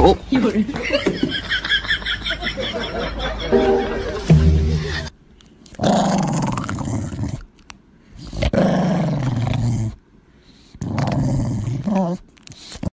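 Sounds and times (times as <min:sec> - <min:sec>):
small dog growling: 0:05.8 - 0:07.5, 0:08.2 - 0:10.0, 0:10.8 - 0:12.2.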